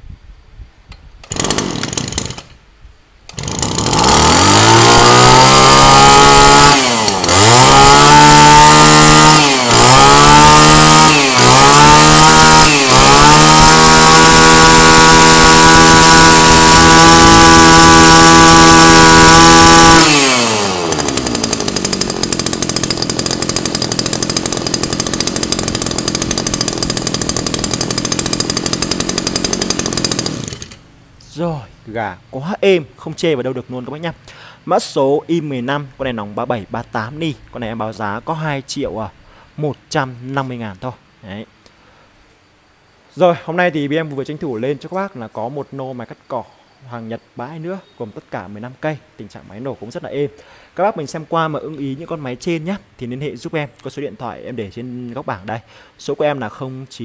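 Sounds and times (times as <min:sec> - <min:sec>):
brush cutter engine revving: 0:01.2 - 0:02.6, 0:03.3 - 0:31.0.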